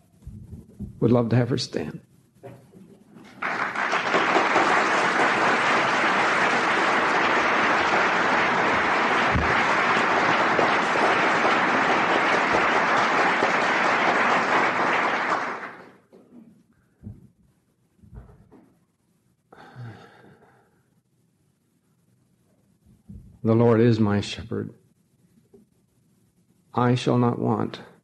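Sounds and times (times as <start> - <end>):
audience applauding: 3.2 - 16.1.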